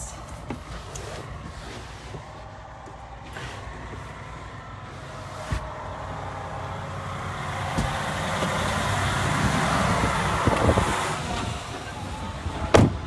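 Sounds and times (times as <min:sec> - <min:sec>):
truck engine idling: 0:00.0 - 0:13.0
rustling noise: 0:00.2 - 0:05.8.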